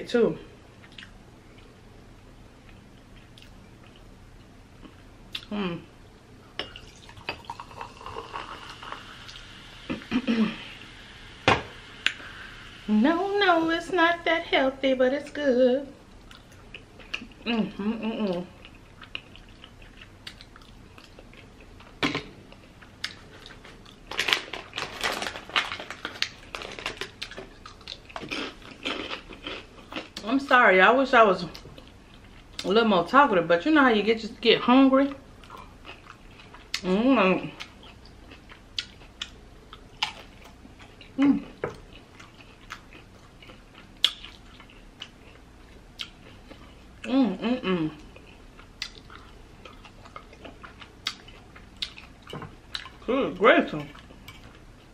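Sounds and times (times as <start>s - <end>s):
person humming: 5.5s - 5.9s, 17.4s - 18.5s, 47.1s - 48.0s
faint chewing: 16.2s - 24.9s, 37.5s - 47.1s, 47.9s - 53.1s
potato chips crunching: 23.1s - 30.3s
chip bag crinkling: 23.3s - 29.4s.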